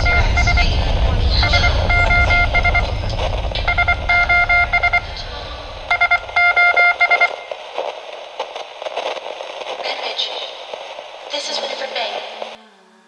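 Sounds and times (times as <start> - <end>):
electronic morse beeping: 0.0 - 7.7
low rumble: 0.0 - 11.3.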